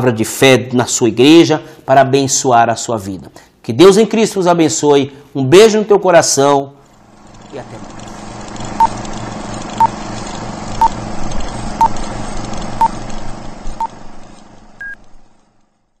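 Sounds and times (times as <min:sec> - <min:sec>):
fluttering hum: 0:06.8 - 0:16.0
higher-pitched beep: 0:14.8 - 0:15.0.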